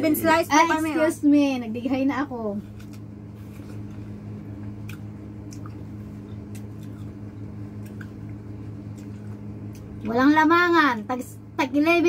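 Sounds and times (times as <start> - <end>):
steady low hum: 0.0 - 12.0
watermelon being bitten and chewed: 2.6 - 10.0
wet eating clicks and smacks: 2.7 - 10.1.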